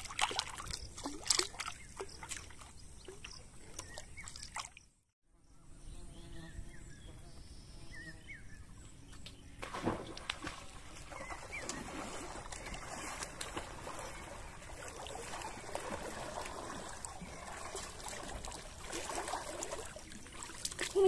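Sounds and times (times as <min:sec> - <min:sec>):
water swishing around wading person: 0:00.0 - 0:04.8, 0:09.8 - 0:21.0.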